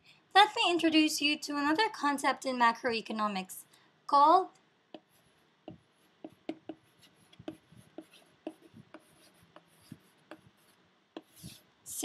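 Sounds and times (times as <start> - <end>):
chalk writing on blackboard: 4.9 - 11.7.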